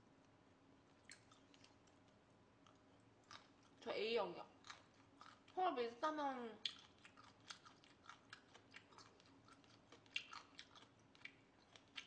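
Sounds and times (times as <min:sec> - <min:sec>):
person chewing: 0:00.9 - 0:03.8, 0:04.6 - 0:05.6, 0:06.6 - 0:12.0.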